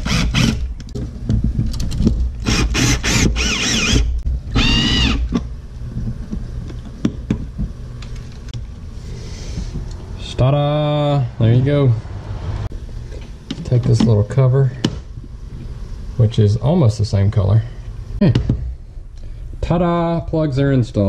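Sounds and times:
cordless drill whining: 0.0 - 0.6, 2.4 - 5.3.

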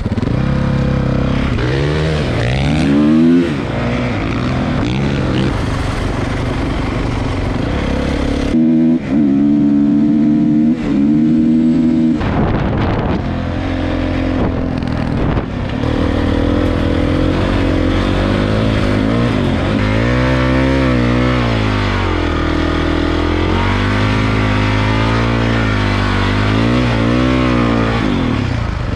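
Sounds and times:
dirt bike engine revving: 0.0 - 28.9
wind on microphone: 10.7 - 19.8.

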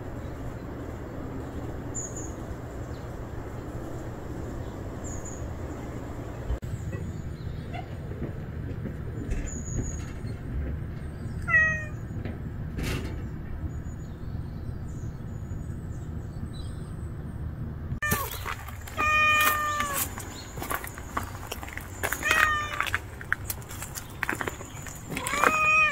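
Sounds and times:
steady low rumble: 0.0 - 25.9
cat meowing: 11.4 - 12.0, 18.0 - 20.1, 22.2 - 23.0, 25.1 - 25.9.

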